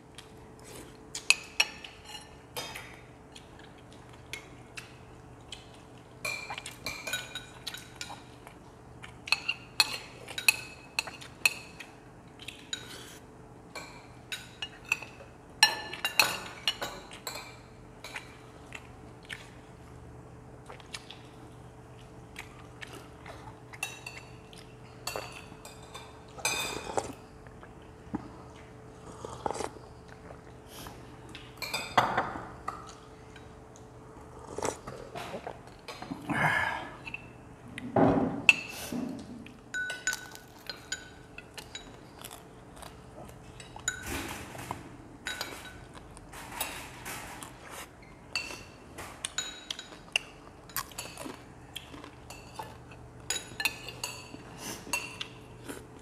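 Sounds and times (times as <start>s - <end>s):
people eating: 0.0s - 56.0s
spoons clinking on bowls: 39.7s - 42.0s, 48.3s - 50.0s, 53.3s - 55.3s.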